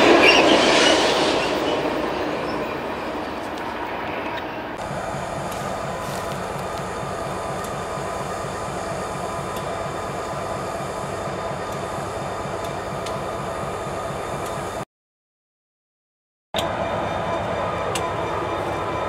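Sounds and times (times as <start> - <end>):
diesel locomotives idling: 4.7 - 14.8, 16.6 - 19.0.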